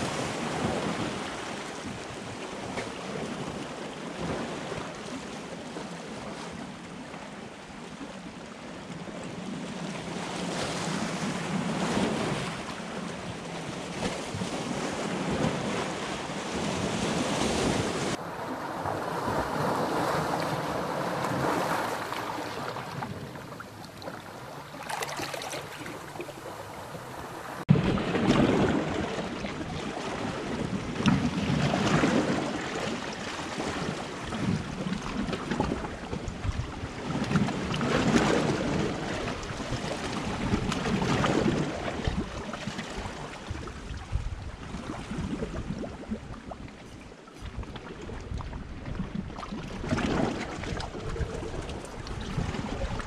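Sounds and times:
waves washing over rocks: 0:09.3 - 0:53.0
wind buffeting microphone: 0:25.8 - 0:53.0.

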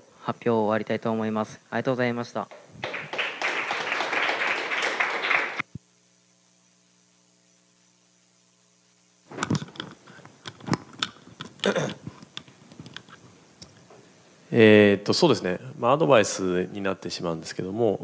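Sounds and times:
faint mains hum: 0:00.0 - 0:18.0
applause: 0:02.5 - 0:05.6.

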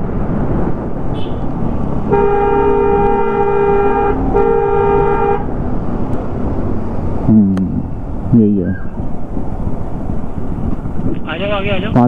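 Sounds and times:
vehicle horn blasts: 0:01.1 - 0:01.5, 0:02.1 - 0:05.5.

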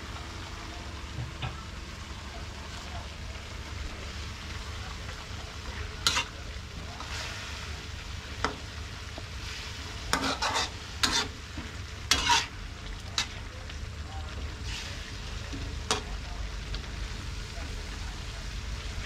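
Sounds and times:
food sizzling in a wok: 0:00.0 - 0:19.0
metal spatula scraping wok: 0:06.0 - 0:06.4, 0:09.4 - 0:11.4, 0:12.1 - 0:12.6.

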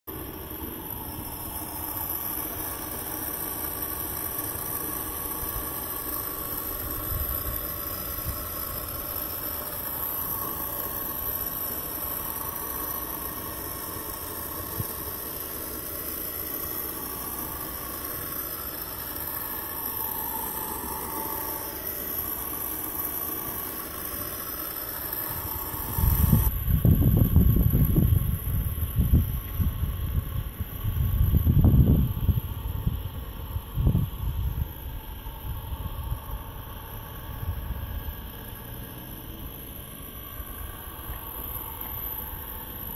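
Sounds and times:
model boat motor humming: 0:00.1 - 0:42.9
wind buffeting microphone: 0:25.9 - 0:34.7.

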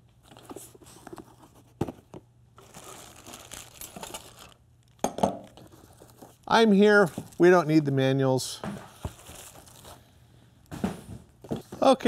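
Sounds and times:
packaging crinkling: 0:02.6 - 0:08.0, 0:08.9 - 0:10.2.

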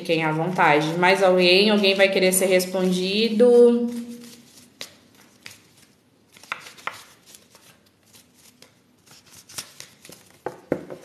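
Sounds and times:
cards being shuffled: 0:03.9 - 0:11.0.

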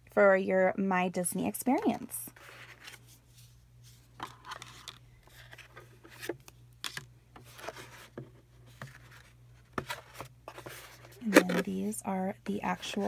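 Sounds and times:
packaging clicks and scrapes: 0:04.2 - 0:11.8.

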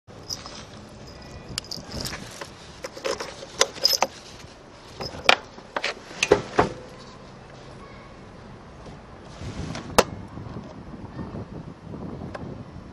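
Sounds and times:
keys jangling on a keyring: 0:00.2 - 0:04.2.

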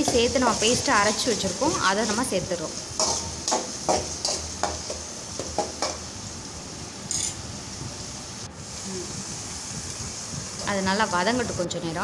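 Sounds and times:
paste sizzling in hot oil: 0:00.0 - 0:06.3
metal spatula scraping a pan: 0:03.0 - 0:04.9.

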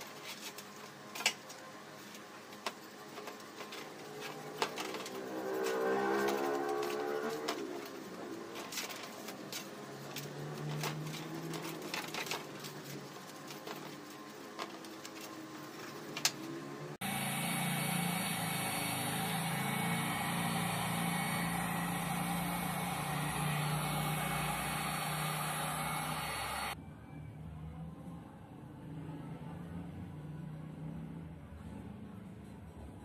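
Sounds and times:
heat gun blowing: 0:17.0 - 0:26.8.

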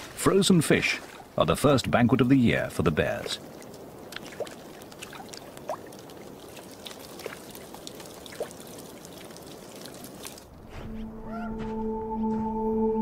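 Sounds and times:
meltwater trickling and pouring: 0:00.4 - 0:10.6
small clicks and splashes: 0:03.0 - 0:10.5.

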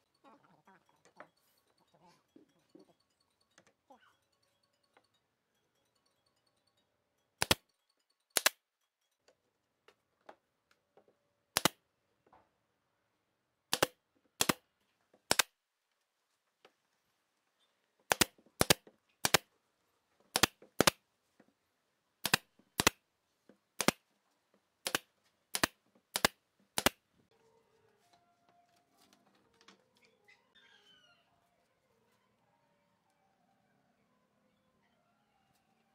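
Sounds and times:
pneumatic nailer shots: 0:13.7 - 0:14.6, 0:15.3 - 0:15.5, 0:18.1 - 0:19.4, 0:20.3 - 0:21.0, 0:22.2 - 0:23.0, 0:23.8 - 0:24.0, 0:24.8 - 0:27.0.

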